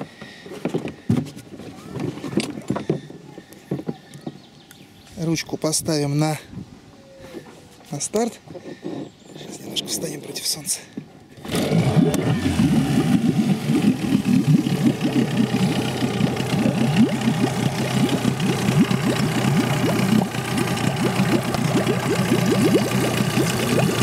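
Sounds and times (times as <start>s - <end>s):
outboard motor starting and running: 0.0s - 4.0s, 11.2s - 24.0s.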